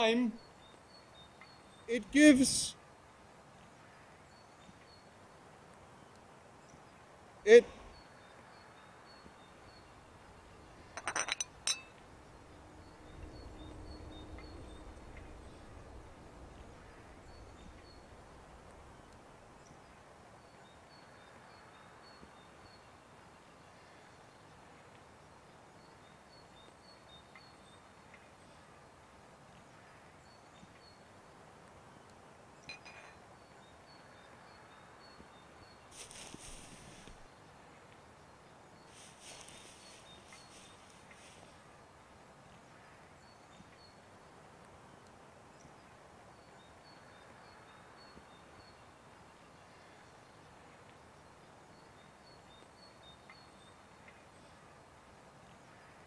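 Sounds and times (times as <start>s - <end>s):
faint high chirping: 6.0s - 23.0s, 32.6s - 37.3s, 38.7s - 41.6s
teacup clinking on saucer: 11.0s - 12.0s, 32.7s - 33.2s
low rumble: 12.2s - 19.0s.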